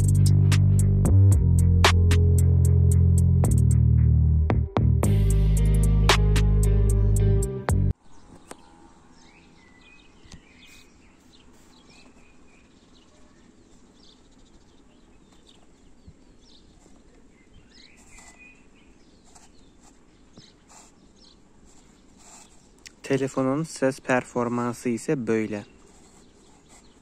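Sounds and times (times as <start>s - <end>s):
small birds chirping: 8.0s - 27.0s.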